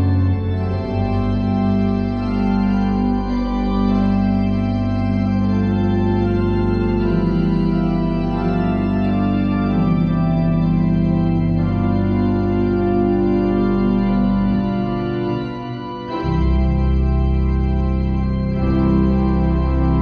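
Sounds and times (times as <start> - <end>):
church organ chords: 0.0 - 20.0.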